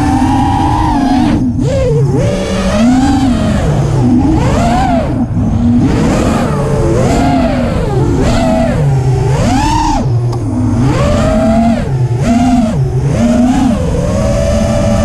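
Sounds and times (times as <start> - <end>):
drone motors whining: 0.0 - 15.0
rushing wind noise: 0.0 - 15.0.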